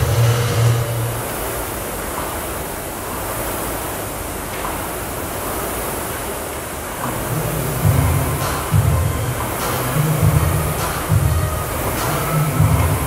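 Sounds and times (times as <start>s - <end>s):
heavy bass music: 0.0s - 1.4s, 7.3s - 13.0s
rowing machine flywheel rushing: 0.0s - 13.0s.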